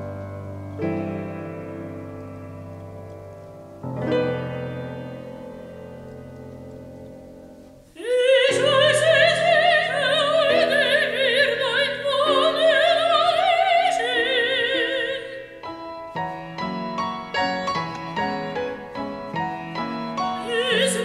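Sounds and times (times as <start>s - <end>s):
piano accompaniment: 0.0s - 21.0s
soprano singing opera: 8.0s - 15.9s, 19.7s - 21.0s.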